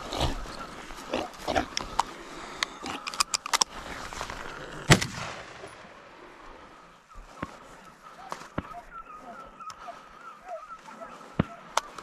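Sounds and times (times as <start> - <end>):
animal grunting: 0.0 - 3.1
rifle shot with echo: 4.9 - 6.0.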